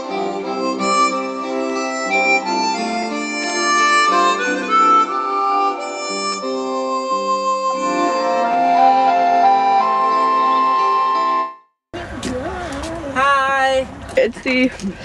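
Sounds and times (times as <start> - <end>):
harmonica music: 0.0 - 11.7.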